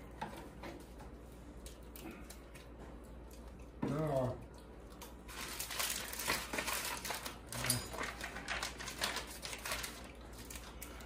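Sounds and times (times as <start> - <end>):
wrapper crinkling and rustling: 5.0 - 11.0.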